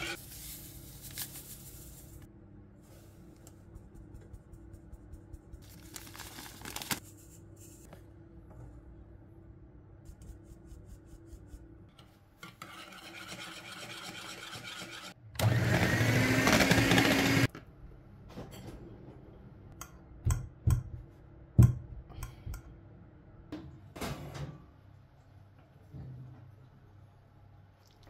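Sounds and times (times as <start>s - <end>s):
electric hand mixer running: 15.4s - 17.5s.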